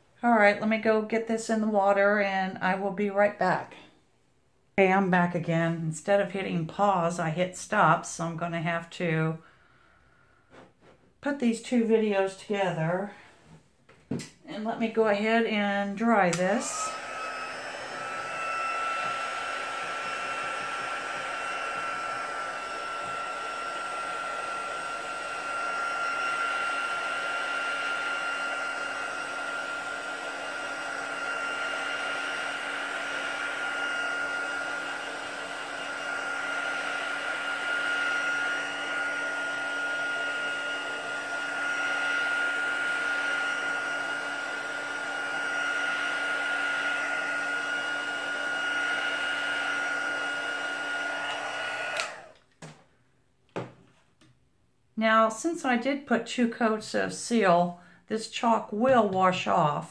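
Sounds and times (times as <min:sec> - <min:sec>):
hot-air dryer blowing: 0:14.1 - 0:52.8.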